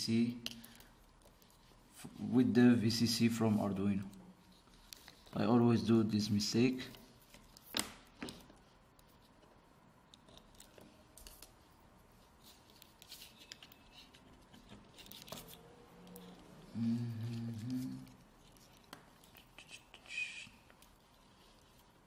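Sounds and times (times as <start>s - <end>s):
man murmuring: 16.7s - 18.2s.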